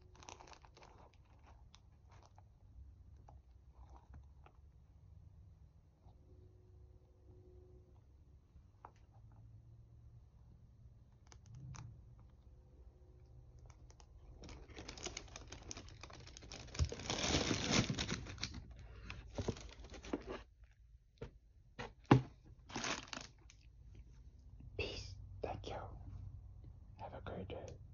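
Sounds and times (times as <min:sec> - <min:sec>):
tissue paper rustling: 0:14.4 - 0:20.4, 0:22.7 - 0:23.4.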